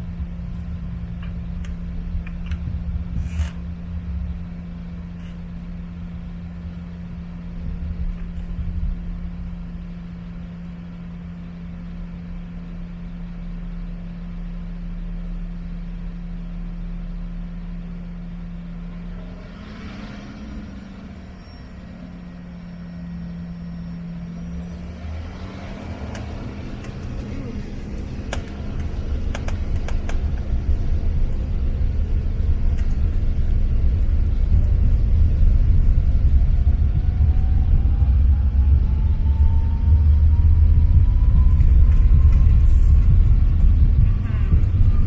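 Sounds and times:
low rumble: 0.0s - 45.0s
jet engine hum: 17.4s - 45.0s.

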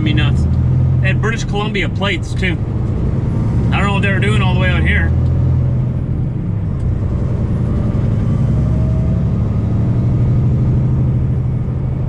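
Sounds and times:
diesel truck engine drone: 0.0s - 12.0s
road noise: 0.0s - 12.0s.

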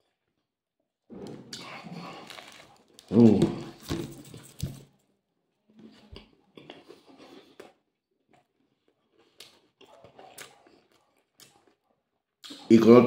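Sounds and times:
person chewing bread: 1.2s - 4.8s, 5.6s - 12.7s
mouth clicks and smacks: 12.4s - 12.7s.

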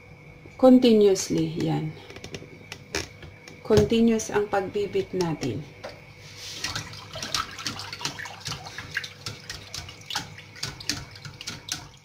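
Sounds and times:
liquid sloshing: 5.8s - 12.0s
whisk clicking against pot: 6.6s - 12.0s.

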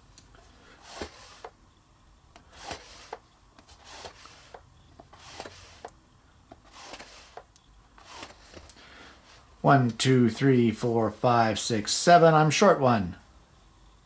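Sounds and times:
pencil scratching along a rule: 0.8s - 1.5s, 2.4s - 5.9s, 6.6s - 9.4s.

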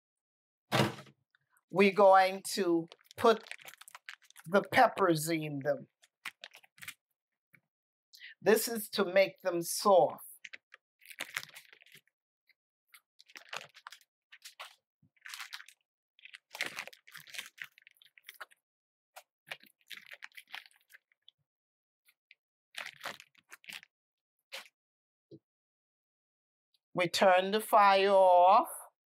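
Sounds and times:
dried chili peppers crinkling: 2.8s - 5.0s, 5.9s - 7.0s, 10.3s - 12.1s, 12.9s - 18.6s, 19.2s - 21.2s, 22.7s - 23.9s.

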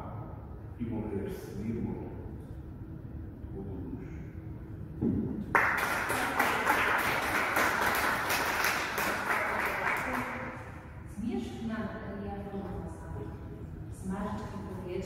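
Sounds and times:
audience applauding: 5.5s - 10.6s.

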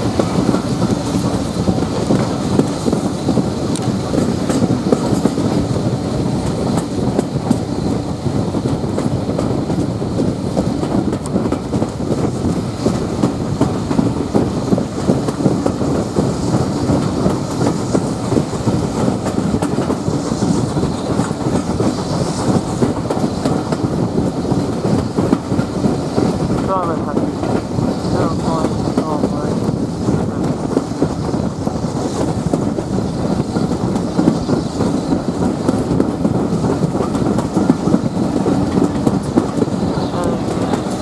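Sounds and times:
steam train rumbling: 0.0s - 41.0s
wheels knocking on track: 0.0s - 41.0s.

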